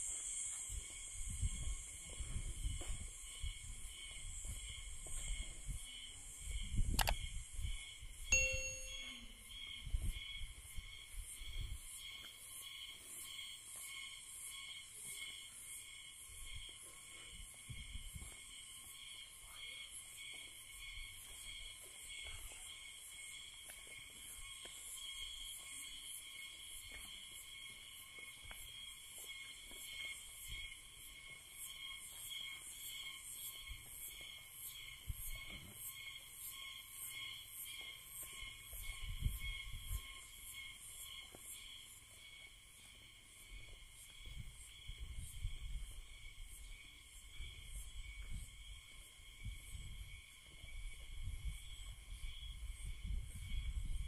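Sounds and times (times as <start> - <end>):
insects pulsing chirr: 0.0 - 54.0
sharp click: 7.0 - 7.2
brief ringing tone: 8.3 - 9.4.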